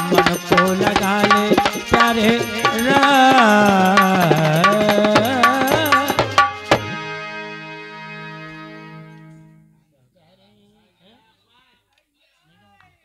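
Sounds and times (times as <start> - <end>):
man singing: 0.0 - 6.9
hand drum strokes: 0.0 - 7.0
held instrumental chord: 0.0 - 9.9.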